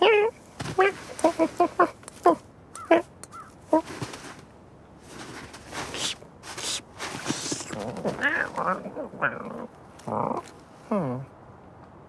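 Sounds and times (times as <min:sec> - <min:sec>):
soft rustling: 0:00.3 - 0:02.4, 0:03.3 - 0:09.2
cartoon crow cawing: 0:02.8 - 0:03.6.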